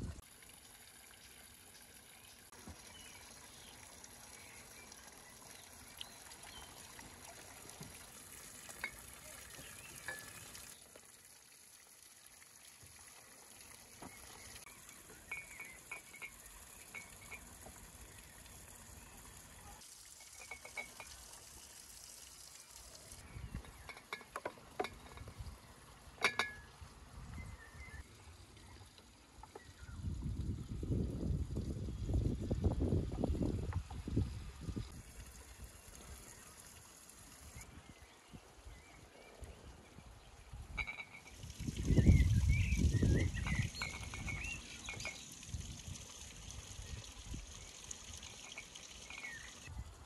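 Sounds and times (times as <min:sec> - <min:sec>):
running water hiss: 0:00.0 - 0:50.0
currants clinking into glass bottles: 0:15.0 - 0:17.7, 0:20.0 - 0:21.4, 0:23.4 - 0:25.4, 0:40.6 - 0:45.7, 0:48.2 - 0:49.6.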